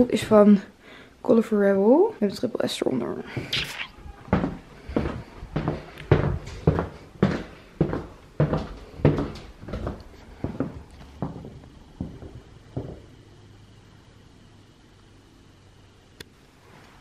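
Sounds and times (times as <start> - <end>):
faint steady hum: 0.0 - 17.0
footsteps on laminate floor: 4.3 - 13.1.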